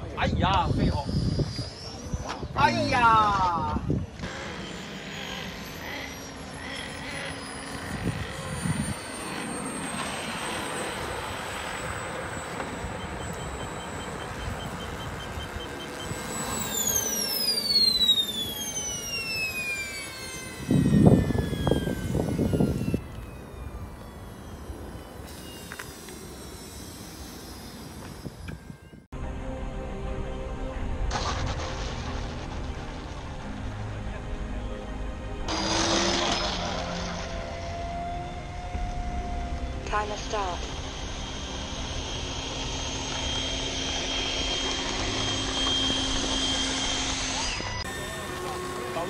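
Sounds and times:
model jet engine whine: 0:00.0 - 0:29.4, 0:30.2 - 0:49.0
loud low rumble: 0:29.2 - 0:35.8.

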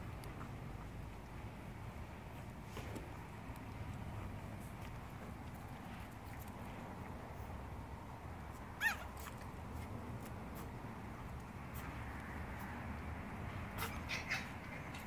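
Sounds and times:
low outdoor background: 0:00.0 - 0:15.0
puppy yipping: 0:08.7 - 0:09.4, 0:13.7 - 0:15.0.

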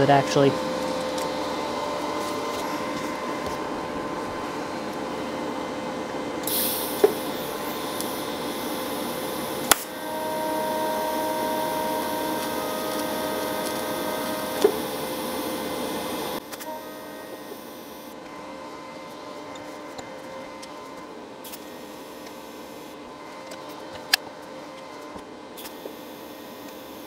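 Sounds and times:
steady buzzing tone: 0:00.0 - 0:18.2
electrical hum: 0:00.0 - 0:24.7
welding arc hissing crackle: 0:06.4 - 0:18.1.

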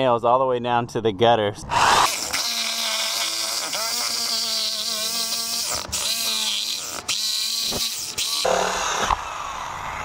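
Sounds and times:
reciprocating saw cutting nails: 0:01.7 - 0:09.2.

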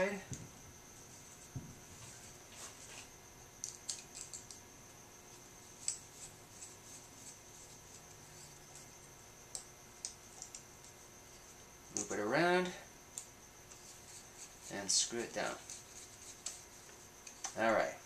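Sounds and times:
screwdriver and wire tapping metal: 0:03.6 - 0:04.6, 0:09.5 - 0:11.0.

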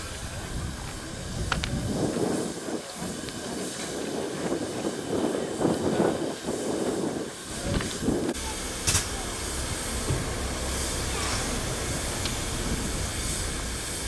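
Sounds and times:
hiss of escaping steam: 0:00.0 - 0:14.0
low rumble: 0:08.3 - 0:14.0.

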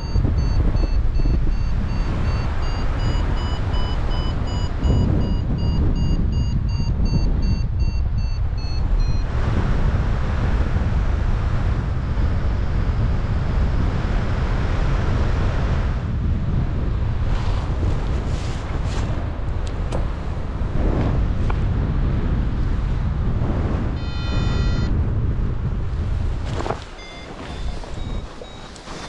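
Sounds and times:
variometer beeping: 0:00.0 - 0:09.4, 0:24.0 - 0:25.0, 0:26.9 - 0:29.0
wind rushing over microphone: 0:00.0 - 0:29.0.

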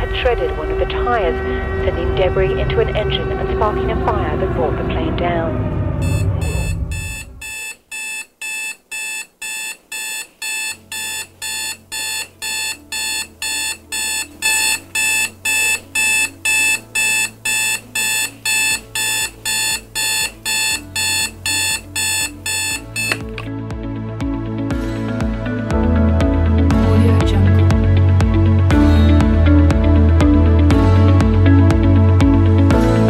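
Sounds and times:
background music: 0:00.0 - 0:07.5, 0:10.0 - 0:33.0
electronic alarm beeping: 0:06.0 - 0:23.5.

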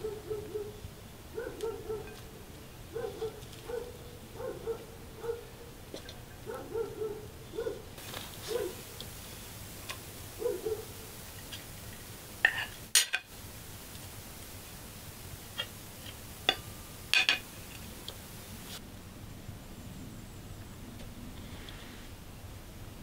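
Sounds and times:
metal spoon clinking on ceramic plates: 0:16.5 - 0:17.5.

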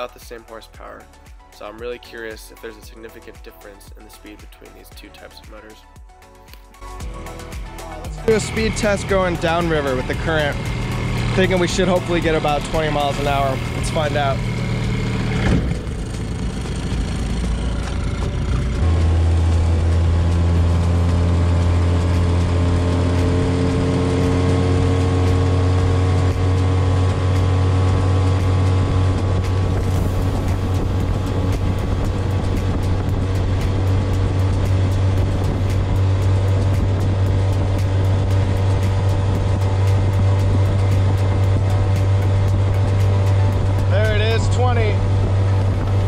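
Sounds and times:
outboard motor running hard: 0:07.0 - 0:46.0.

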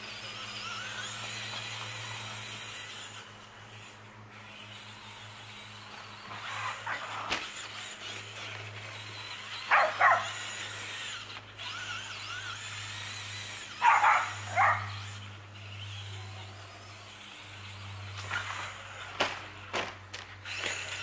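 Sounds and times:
electric motor whining: 0:00.0 - 0:21.0
dog barking: 0:09.7 - 0:10.3, 0:13.8 - 0:15.0.

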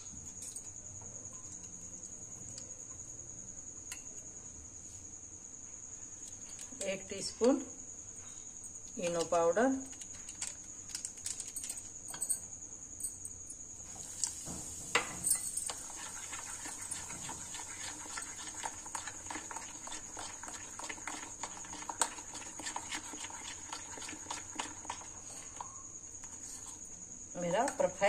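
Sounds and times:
batter stirred in glass bowl: 0:14.0 - 0:26.7.

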